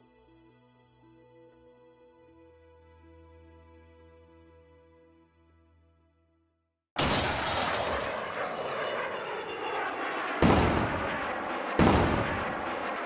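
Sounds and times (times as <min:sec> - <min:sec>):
rushing boom: 0:10.4 - 0:12.9
sudden booms: 0:10.4 - 0:12.9.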